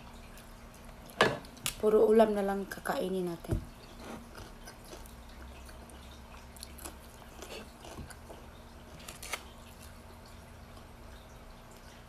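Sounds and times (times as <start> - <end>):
low steady hum: 0.0 - 12.0
person chewing food: 4.0 - 10.0.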